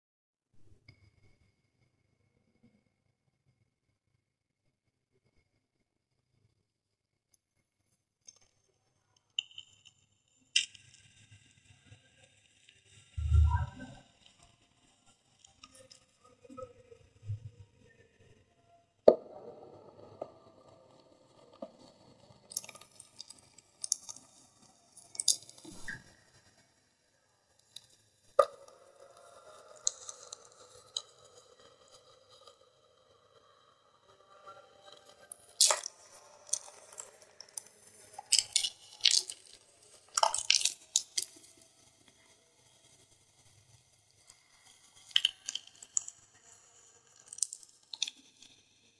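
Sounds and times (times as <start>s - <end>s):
chalk crumbling between fingers: 35.6s - 41.4s.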